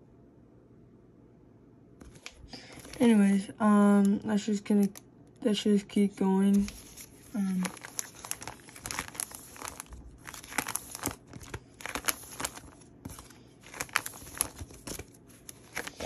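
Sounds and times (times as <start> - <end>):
plastic pages flipping and crinkling: 2.0 - 5.0, 6.4 - 16.0.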